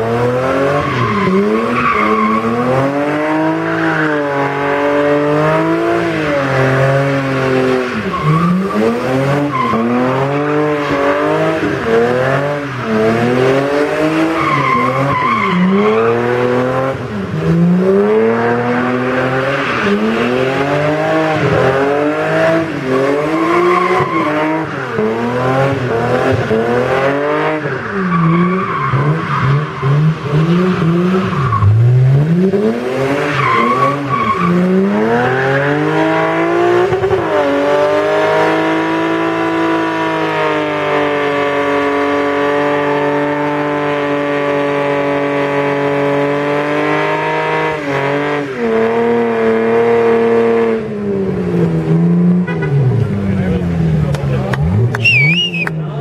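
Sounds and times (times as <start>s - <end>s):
car engine revving: 0.0s - 56.0s
tyres squealing: 55.0s - 55.7s.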